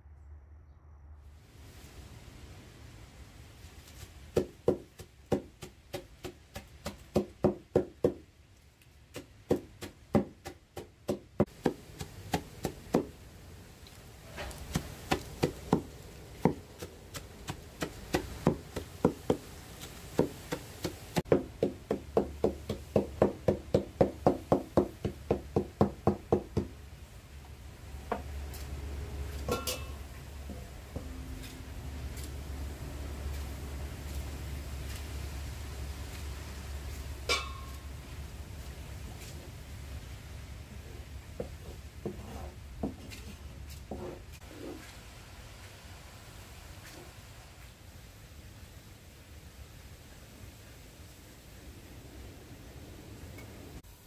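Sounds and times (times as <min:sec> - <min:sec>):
knife chopping herbs on wood: 0:04.3 - 0:08.3, 0:09.1 - 0:13.2, 0:14.5 - 0:26.8.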